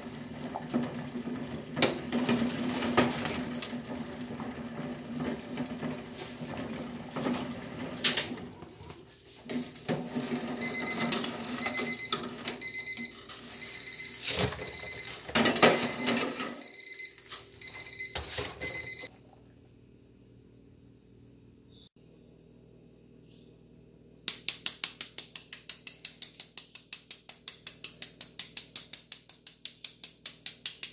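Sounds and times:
water boiling in a pot: 0.0s - 12.5s
electronic timer beeping: 10.6s - 19.1s.

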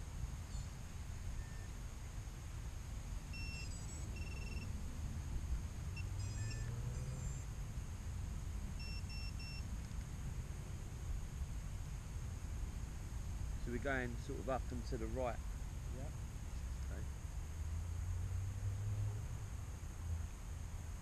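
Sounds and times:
short electronic beeps: 3.3s - 4.7s, 6.0s - 7.4s, 8.8s - 9.6s.

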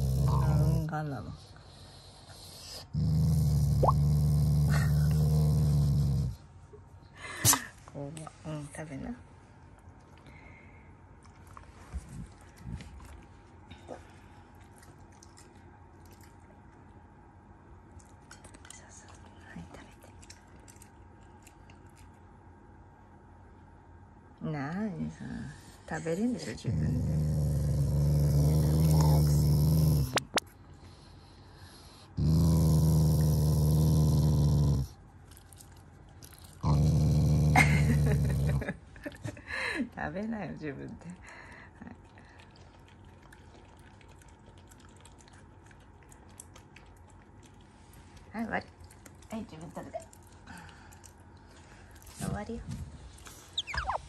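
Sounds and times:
dog growling low: 0.0s - 1.4s, 2.8s - 6.4s, 26.4s - 30.4s, 32.2s - 35.0s, 36.3s - 38.8s
dog chewing dry kibble: 42.2s - 52.2s.

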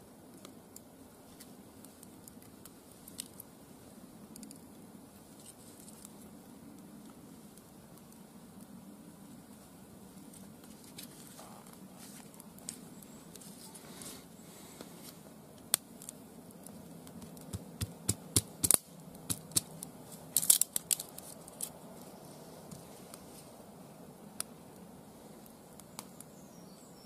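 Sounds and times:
kindling sticks cracking and snapping: 0.3s - 3.5s, 4.2s - 8.7s, 10.2s - 13.8s, 15.0s - 22.1s, 24.3s - 26.4s.

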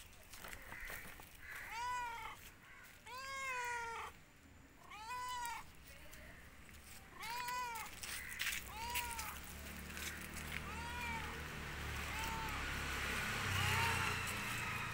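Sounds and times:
cat meowing: 1.6s - 2.4s, 3.0s - 4.2s, 4.8s - 5.7s, 7.1s - 8.0s, 8.7s - 9.4s, 10.5s - 11.4s, 12.0s - 12.7s, 13.6s - 14.2s.

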